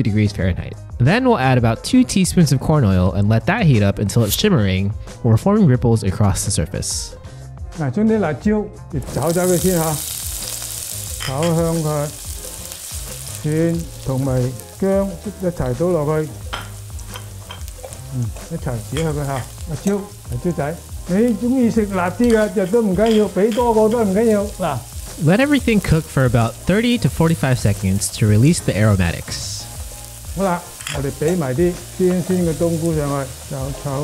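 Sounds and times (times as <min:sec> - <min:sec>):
chilies sizzling in oil: 0:09.0 - 0:34.0.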